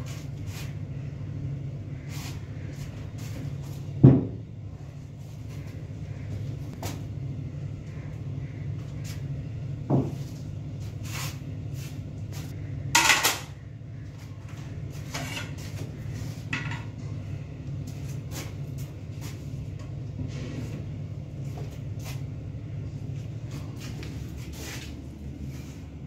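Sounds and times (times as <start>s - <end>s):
low room hum: 0.0s - 26.0s
tableware clicks and knocks: 13.0s - 13.5s.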